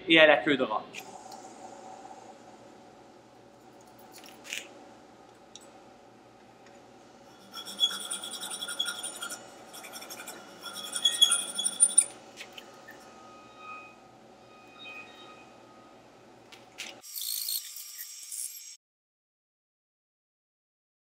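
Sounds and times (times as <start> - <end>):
metallic ring from file: 7.3 - 15.8
hand file scraping wood: 7.4 - 12.1.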